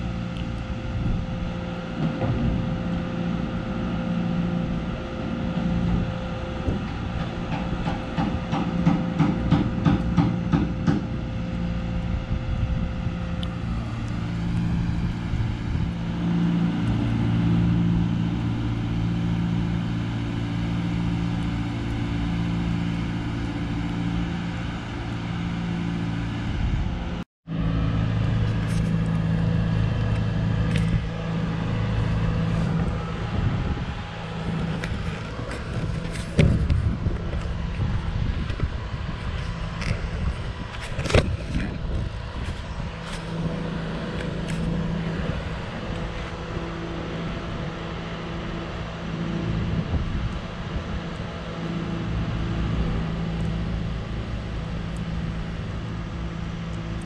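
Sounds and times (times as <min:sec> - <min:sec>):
engine running with pulsing hum: 0:00.0 - 0:57.0.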